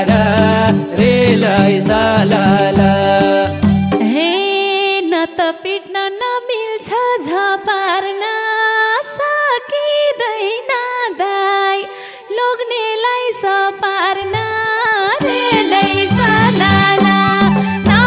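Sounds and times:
low rhythmic accompaniment: 0.0s - 4.2s, 14.2s - 18.0s
folk melody with pitch bends: 0.0s - 4.4s, 14.1s - 18.0s.

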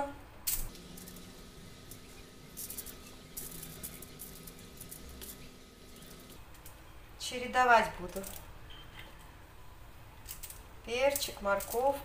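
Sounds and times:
faint steady hum: 0.0s - 11.0s
aluminium foil crinkling: 1.9s - 6.4s.

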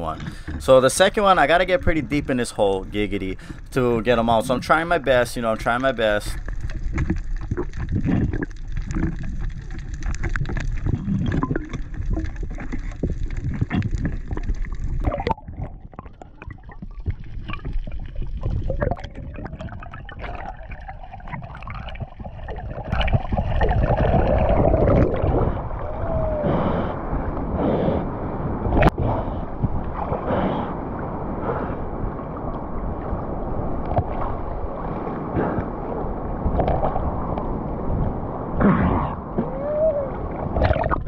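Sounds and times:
water rushing: 0.0s - 41.0s
underwater crackling clicks: 5.7s - 25.2s.

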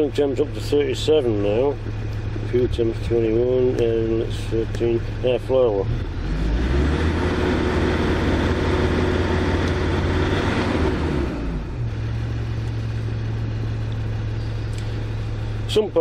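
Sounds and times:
diesel engine revving and idling: 0.0s - 16.0s.

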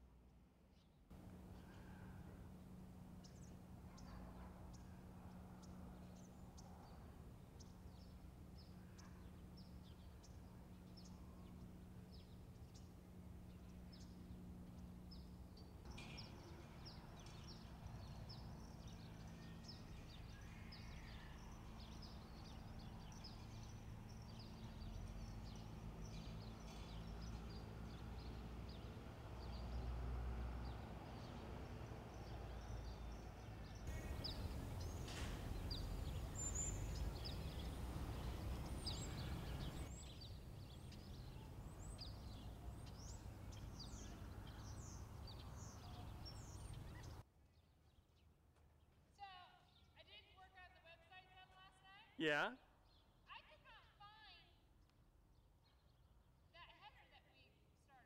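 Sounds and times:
small birds chirping: 0.8s - 29.9s, 30.6s - 47.2s
low steady hum: 33.9s - 47.2s.

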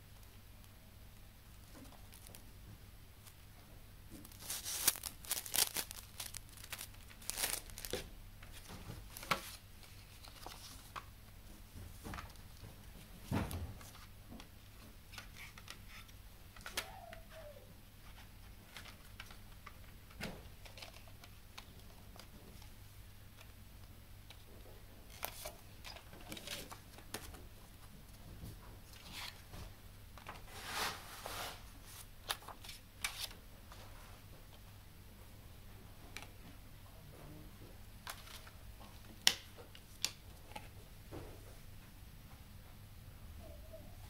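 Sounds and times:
paper rustling: 1.6s - 2.5s, 4.1s - 11.1s, 25.1s - 27.4s, 30.2s - 33.9s.

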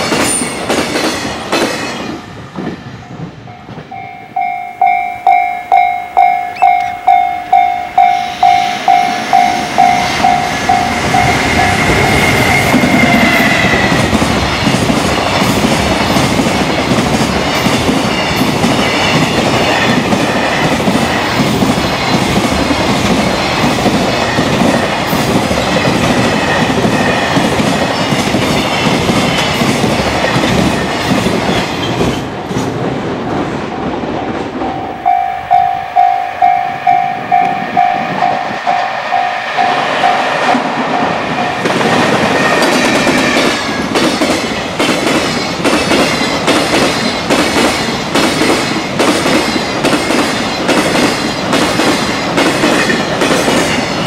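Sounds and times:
train wheels clattering on rails: 0.0s - 54.0s
level-crossing bell ringing: 3.5s - 12.8s, 34.7s - 40.4s.

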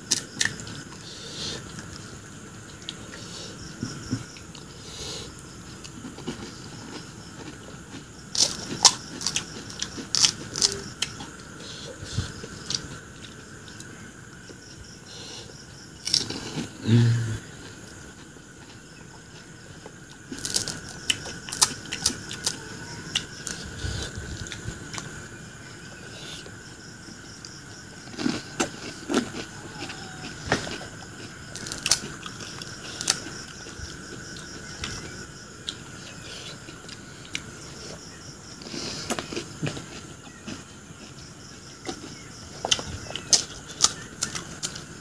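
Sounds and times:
crunchy shells cracking and chewed: 0.0s - 11.6s, 12.2s - 14.7s, 15.8s - 25.8s, 26.4s - 45.0s.

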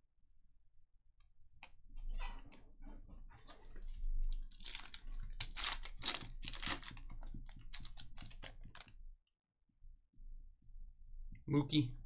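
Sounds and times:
card packaging crinkling: 3.6s - 9.0s.

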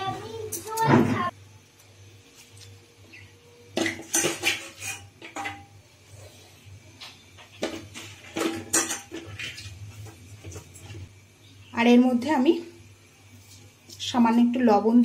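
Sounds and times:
metal utensil clattering in pot: 3.8s - 5.8s, 7.6s - 9.7s.

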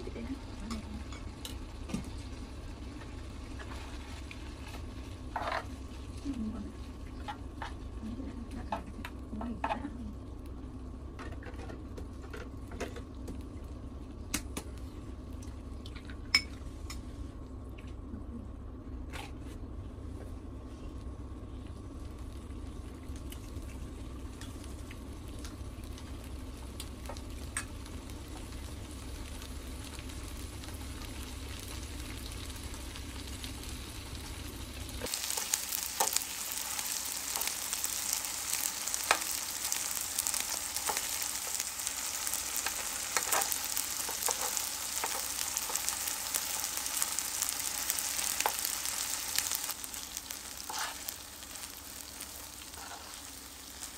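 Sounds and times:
fried rice sizzling on grill pan: 0.0s - 8.3s, 21.7s - 53.9s.

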